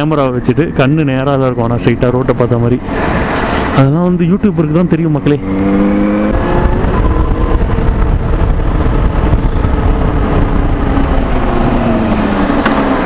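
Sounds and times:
wind rush on microphone: 1.9 - 13.0
motorcycle engine running: 5.4 - 11.4.

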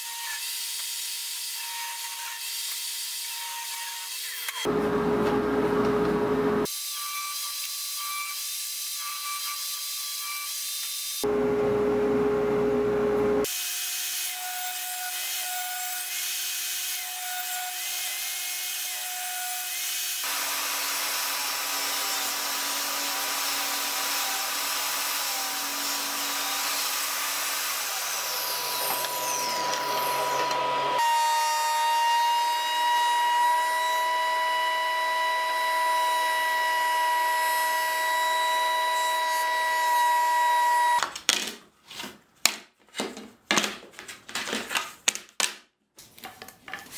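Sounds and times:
table saw ripping wood: 20.2 - 31.3.

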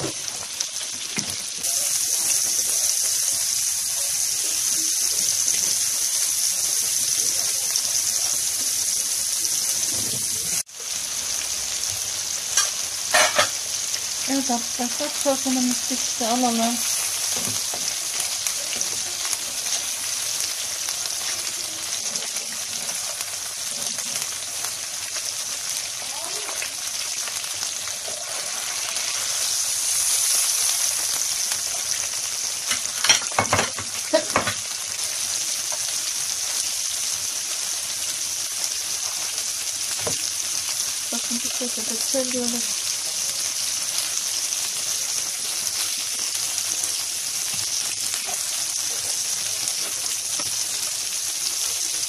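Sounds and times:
meatballs sizzling in a pan: 0.0 - 52.0.

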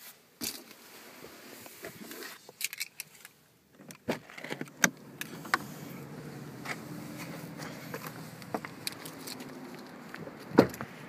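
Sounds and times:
sharp clicks and knocks: 7.9 - 10.9.

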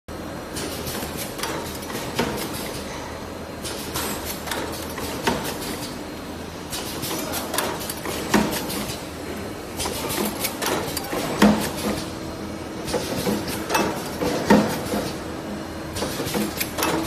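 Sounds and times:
sharp machine clunk: 15.9 - 17.0.

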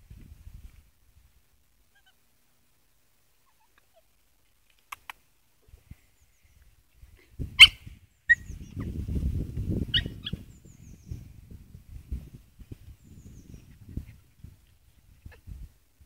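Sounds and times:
puppy yipping: 7.6 - 8.8, 9.9 - 10.4.

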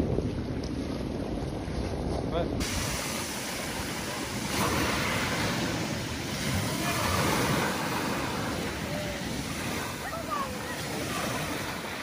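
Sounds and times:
waves washing up pebble beach: 2.6 - 12.0.

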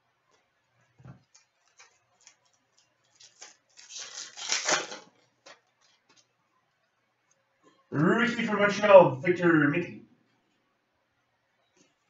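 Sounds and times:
cards clicking and rustling: 1.2 - 6.3
packaging crinkling: 1.2 - 6.3.

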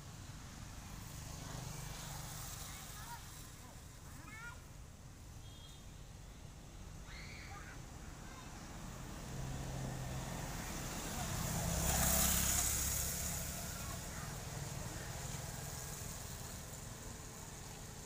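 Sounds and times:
vehicle driving past: 8.8 - 18.0.

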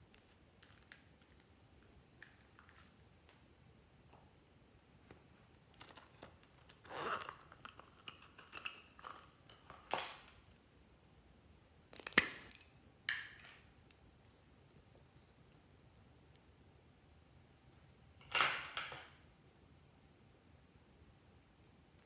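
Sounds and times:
plastic items clicking and crinkling: 5.7 - 10.4.

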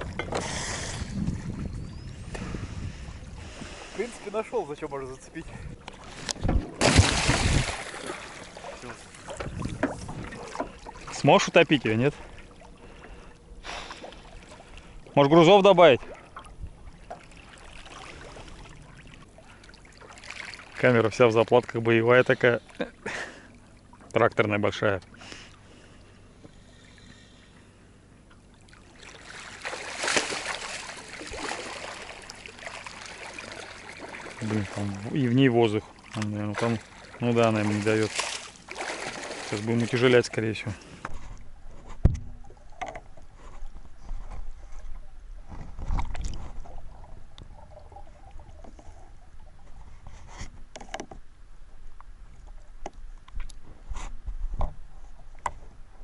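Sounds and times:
water splashing and churning: 0.0 - 27.6, 28.3 - 56.0
muffled underwater knocks: 41.9 - 43.2.

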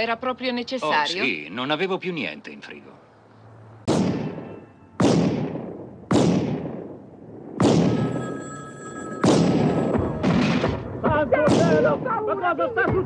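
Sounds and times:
loud gunshots: 3.9 - 8.2, 9.2 - 10.8, 11.4 - 12.1
steady high ringing tone: 7.9 - 10.2.

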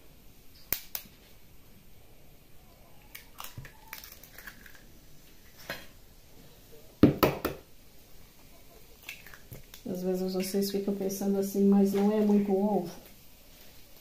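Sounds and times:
eggs cracking: 3.0 - 6.0, 8.7 - 10.6.

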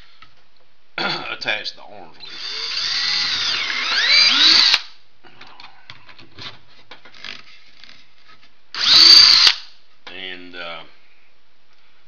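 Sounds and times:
cordless drill motor whine: 2.2 - 4.8, 8.8 - 9.6.

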